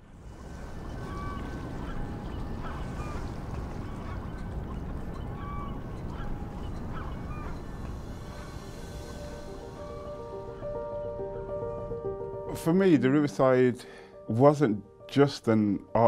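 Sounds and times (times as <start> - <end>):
distant traffic: 0.0 - 12.3
water rumbling: 0.0 - 12.5
waterbirds calling: 0.0 - 12.7.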